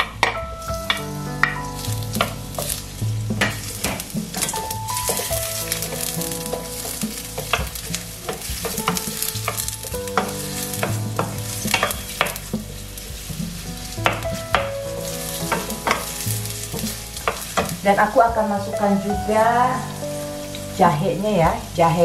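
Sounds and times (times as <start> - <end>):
onions sizzling in oil: 0.0 - 22.0
spatula scraping a wok: 0.8 - 18.0.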